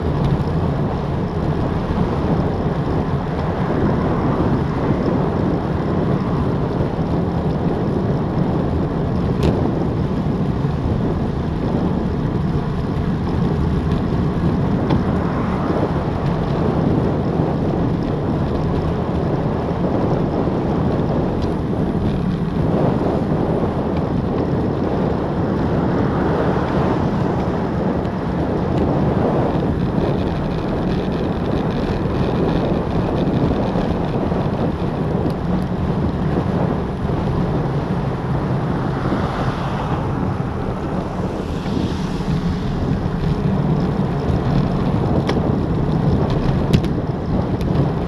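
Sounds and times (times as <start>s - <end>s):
wind rushing over microphone: 0.0s - 48.0s.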